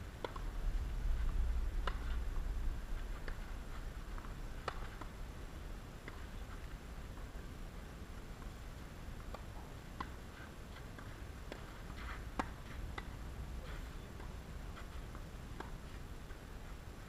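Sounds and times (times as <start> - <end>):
racquets striking tennis ball: 0.2 - 0.5, 1.2 - 2.2, 3.0 - 5.2, 9.2 - 16.4.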